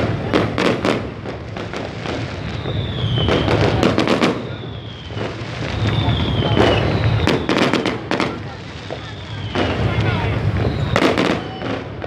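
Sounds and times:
fireworks popping and banging: 0:00.0 - 0:12.0
street crowd noise: 0:00.0 - 0:12.0
high falling whistles: 0:02.4 - 0:03.6, 0:04.4 - 0:07.8, 0:10.6 - 0:11.6.

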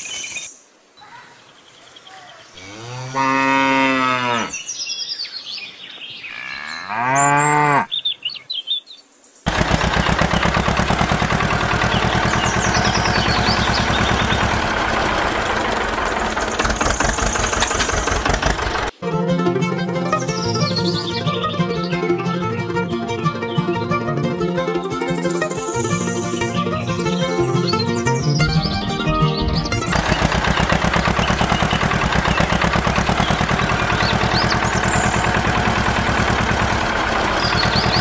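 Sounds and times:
cow mooing: 0:02.6 - 0:04.6, 0:06.3 - 0:07.9
fast mechanical clatter: 0:09.5 - 0:18.9, 0:29.9 - 0:38.0.

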